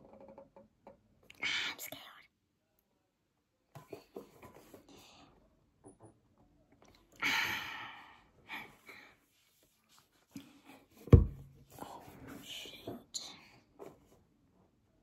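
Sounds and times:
person sighing: 0:07.2 - 0:08.2
heavy thump: 0:11.1 - 0:11.5.

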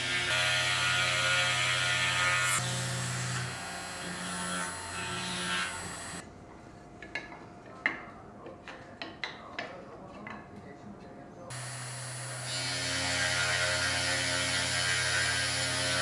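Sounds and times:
router motor winding down: 0:11.5 - 0:14.0.

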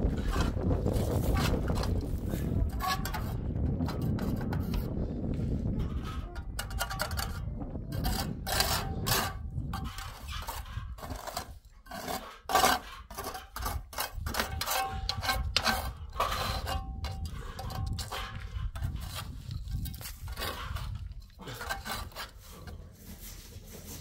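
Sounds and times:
rough scraping strokes: 0:08.0 - 0:24.0.

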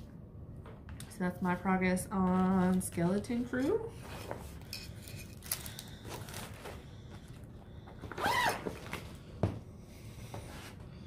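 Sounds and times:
plastic zippered bag rustling: 0:08.1 - 0:09.0.

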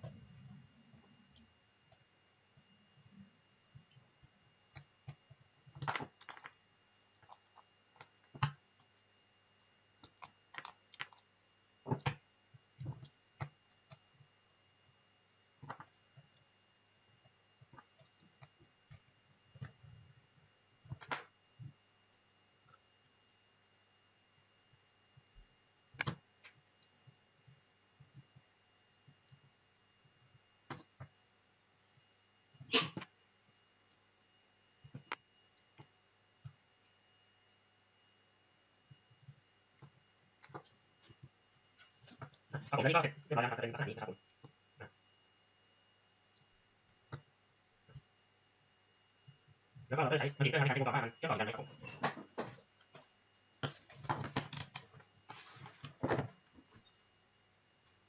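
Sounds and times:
hands clicking and tapping on parts: 0:52.0 - 0:55.1.

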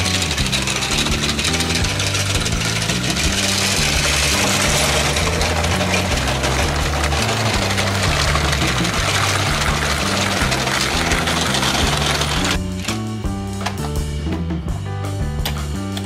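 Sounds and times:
toy train motor whirring: 0:00.0 - 0:13.0
background music with bass line: 0:00.0 - 0:16.0.

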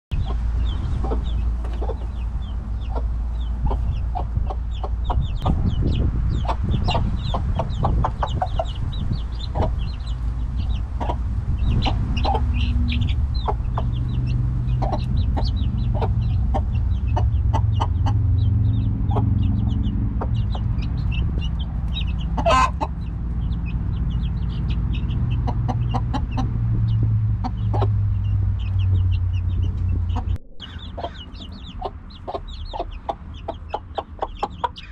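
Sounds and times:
chicks peeping: 0:00.1 - 0:34.9
hen clucking softly: 0:22.1 - 0:23.0, 0:30.1 - 0:34.9.

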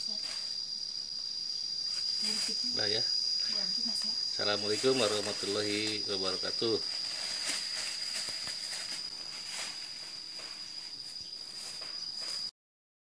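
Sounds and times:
insect trilling: 0:00.0 - 0:12.5
light rustling: 0:06.8 - 0:12.5.

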